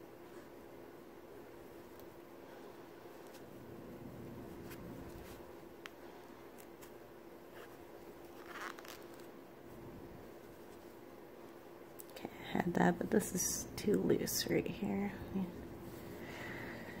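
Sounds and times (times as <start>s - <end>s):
faint steady hum: 0.0s - 17.0s
yarn rustling: 0.1s - 12.0s.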